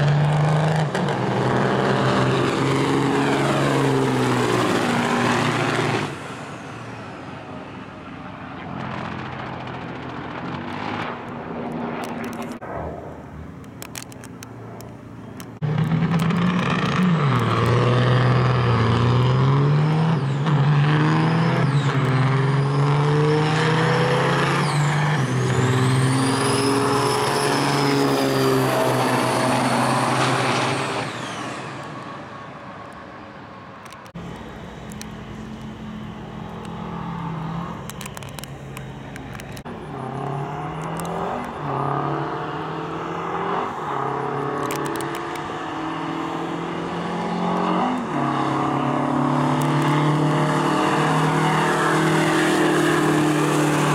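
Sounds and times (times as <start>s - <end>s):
diesel engine running and revving: 0.0s - 12.6s, 15.3s - 32.5s, 33.9s - 53.9s
diesel trucks accelerating: 0.0s - 53.9s.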